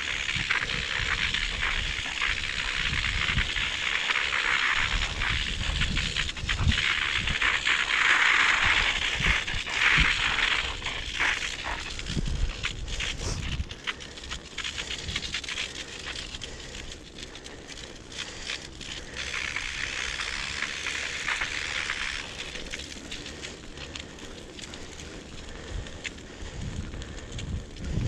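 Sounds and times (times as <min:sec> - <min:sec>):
snow crunching under bicycle tyres: 0:00.0 - 0:28.0.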